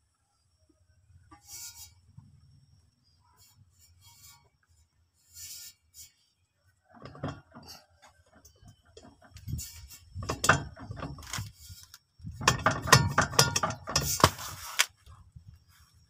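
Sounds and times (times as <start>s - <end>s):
universal joint clanking: 6.9s - 14.4s.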